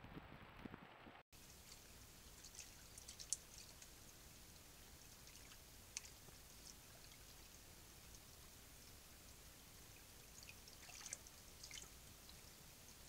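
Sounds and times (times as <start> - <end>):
steady hiss: 0.5 - 13.0
small ticks and drips: 1.4 - 13.0
stream water trickling: 1.4 - 13.0.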